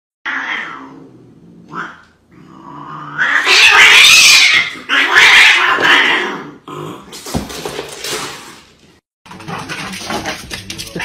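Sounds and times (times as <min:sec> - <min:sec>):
cat growling: 0:00.3 - 0:07.1
cats yowling screech: 0:03.1 - 0:06.3.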